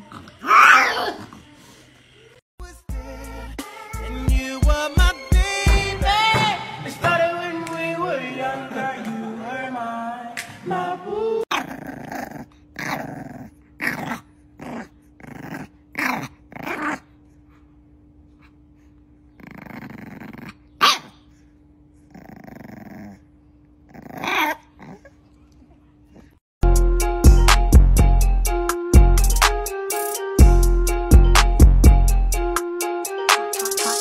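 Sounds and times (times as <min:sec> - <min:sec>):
background music: 0:02.6 - 0:11.4, 0:26.6 - 0:34.0
puppy growling: 0:11.5 - 0:17.2, 0:19.3 - 0:21.2, 0:22.0 - 0:25.2
puppy barking: 0:20.8 - 0:21.2.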